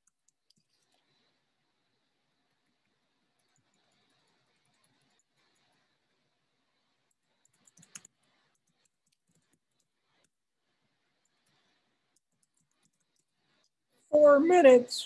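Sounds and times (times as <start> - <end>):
computer keyboard clicks: 0.0 - 1.0, 7.4 - 9.9.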